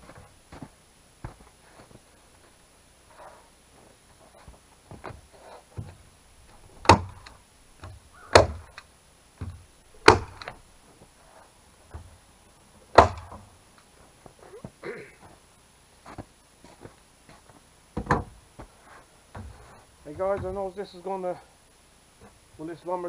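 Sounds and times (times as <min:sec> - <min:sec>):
hammer striking wooden wall: 0:06.8 - 0:08.7, 0:09.4 - 0:10.6, 0:13.0 - 0:13.5.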